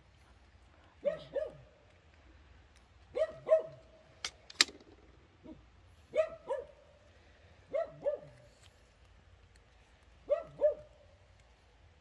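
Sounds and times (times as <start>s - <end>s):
dog barking: 1.0s - 1.7s, 3.1s - 3.9s, 5.4s - 6.8s, 7.7s - 8.4s, 10.2s - 11.0s
sharp clicks: 4.2s - 5.2s.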